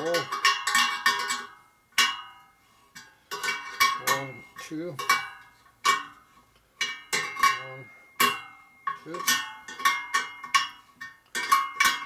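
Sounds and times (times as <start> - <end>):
spoke wrench clinking on spokes: 6.8 - 12.0.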